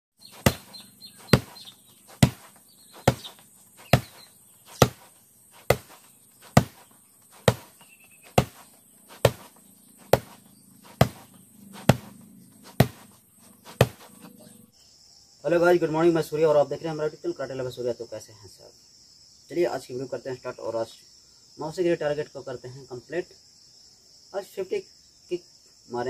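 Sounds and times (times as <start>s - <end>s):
kicks smacking a padded target: 0.3s - 14.1s.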